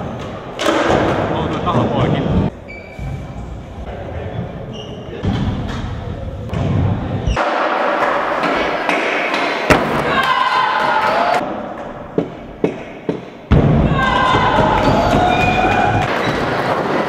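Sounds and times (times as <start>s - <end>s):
people shouting: 9.7s - 11.5s, 13.7s - 16.1s.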